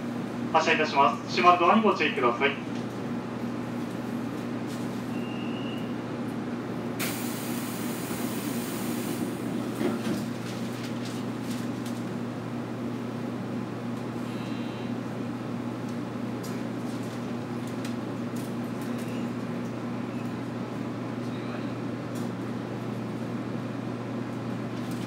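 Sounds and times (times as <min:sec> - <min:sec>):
train equipment humming: 0:05.3 - 0:16.8
compressed air hiss: 0:07.0 - 0:09.3.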